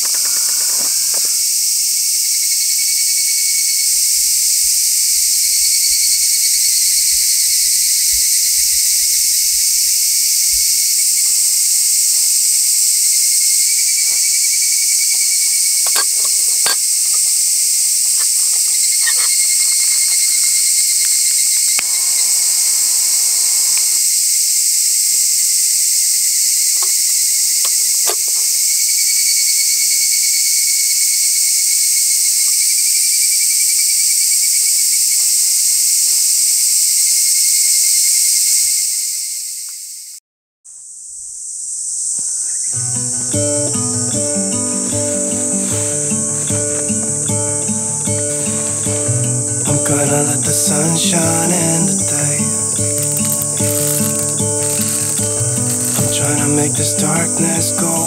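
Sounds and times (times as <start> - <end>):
insects chirring: 0.0 - 58.0
acoustic guitar music: 10.6 - 24.0, 42.7 - 58.0
faint clicks: 13.7 - 24.0.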